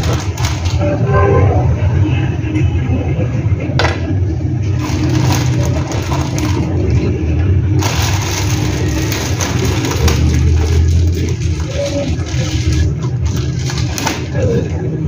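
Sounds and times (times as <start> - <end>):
plastic bag rustling: 0.0 - 1.0, 4.6 - 14.8
low rumble: 0.0 - 15.0.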